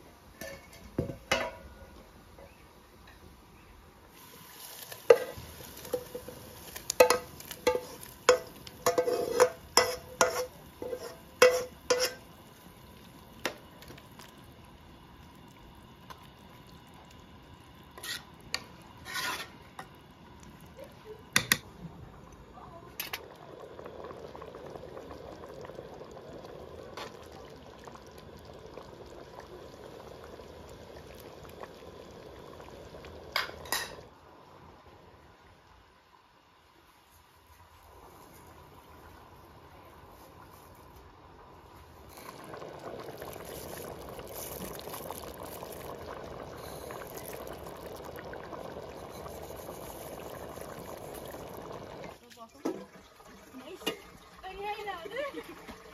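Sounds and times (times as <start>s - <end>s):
pot simmering bubbling hiss: 0.0s - 55.9s
metal spoon scraping frying pan: 7.0s - 12.3s, 18.0s - 19.6s.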